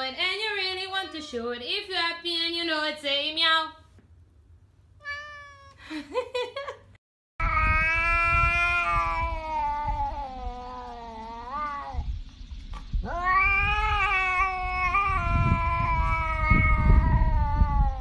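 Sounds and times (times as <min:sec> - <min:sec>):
cat yowling: 0:05.0 - 0:05.8, 0:07.4 - 0:12.0, 0:13.0 - 0:18.0.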